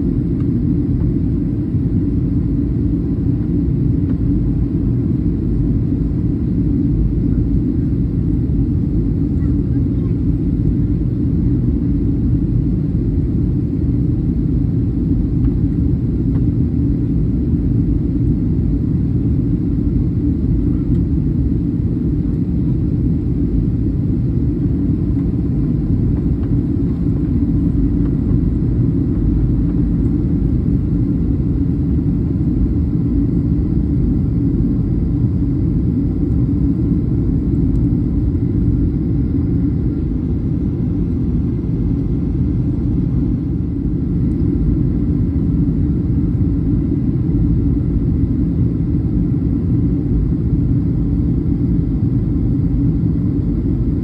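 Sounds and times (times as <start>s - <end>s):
airplane cabin rumble: 0.0s - 54.0s.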